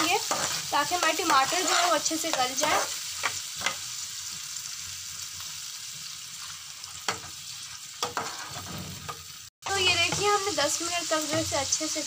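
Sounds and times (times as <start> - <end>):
spatula scraping a pan: 0.0 - 3.9, 6.5 - 9.3
masala sizzling in a frying pan: 0.0 - 12.0.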